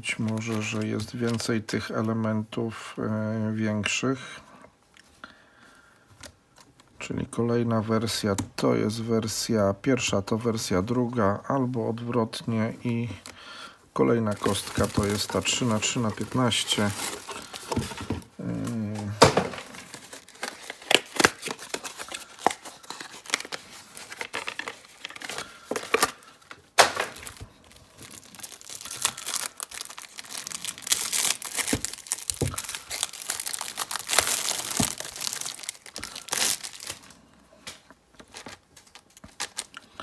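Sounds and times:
plastic wrapping crinkling and tearing: 0.0 - 1.6, 14.2 - 40.0.

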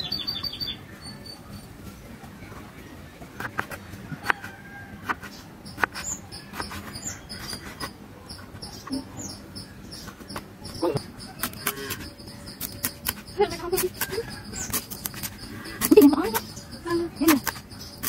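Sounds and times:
high rapid chirping: 5.6 - 18.0.

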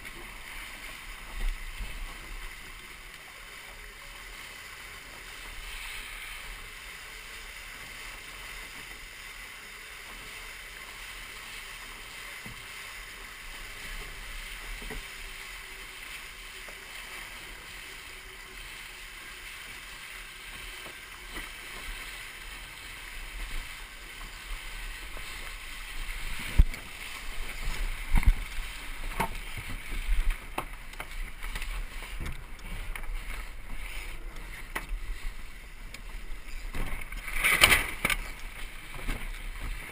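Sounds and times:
water rushing past hull: 0.0 - 39.9
wind on microphone: 24.6 - 39.9.

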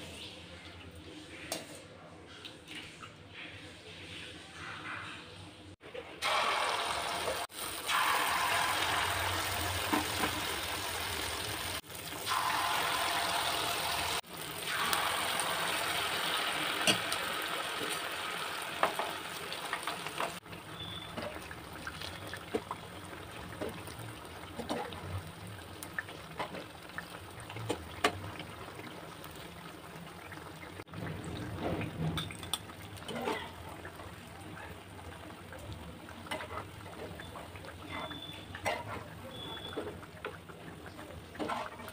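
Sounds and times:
batter sizzling in hot oil: 6.2 - 31.5.

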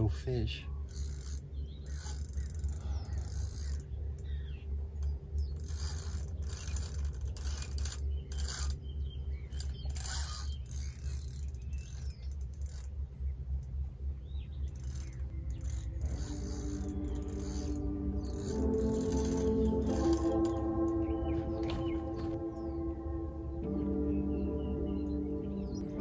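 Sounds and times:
fishing reel ticking and whirring: 0.8 - 8.8, 9.4 - 13.9, 14.5 - 21.0
low rumble: 13.0 - 26.0
music: 15.6 - 26.0.

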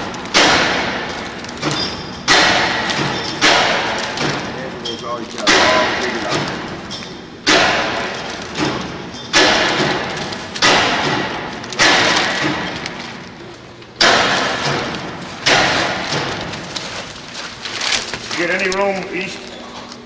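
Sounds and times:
plastic bag rustling: 16.0 - 19.9.

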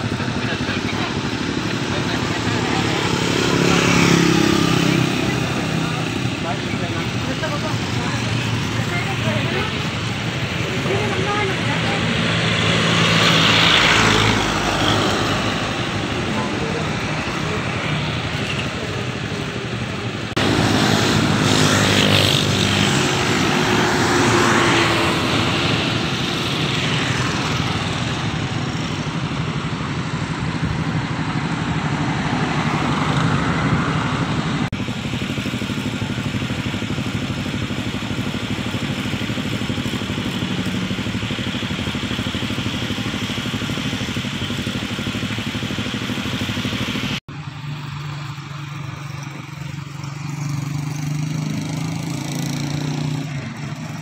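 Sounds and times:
traffic engine drone: 0.0 - 54.0.

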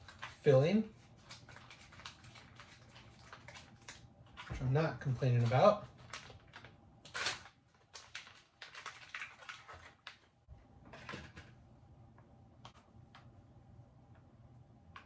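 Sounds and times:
plastic pouch crinkling: 0.0 - 10.3.

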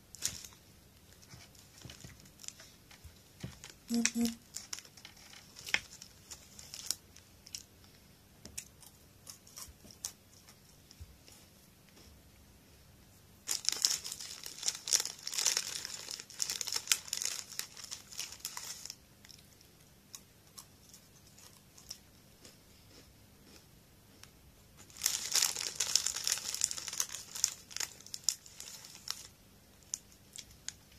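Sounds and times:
snack wrapper crinkling: 3.6 - 7.7, 13.5 - 19.4, 24.8 - 30.8.

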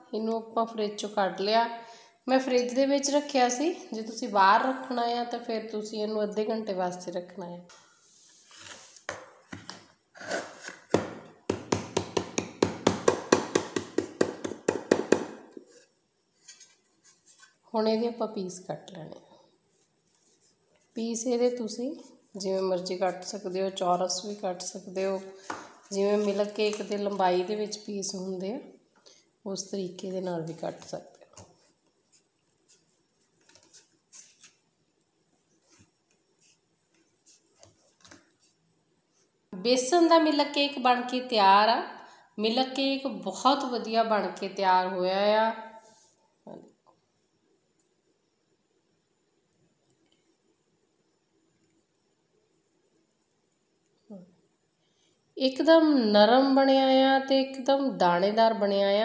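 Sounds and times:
knife tapping on cutting board: 10.9 - 15.4.

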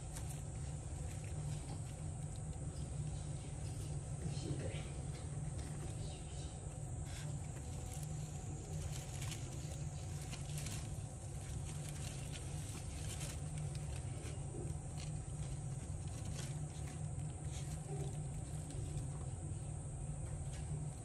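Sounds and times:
steady low hum: 0.0 - 21.0
dry leaves and straw rustling: 7.0 - 19.8.

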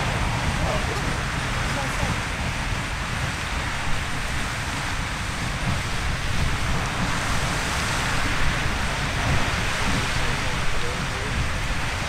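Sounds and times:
geyser water and steam hissing: 0.0 - 12.0.

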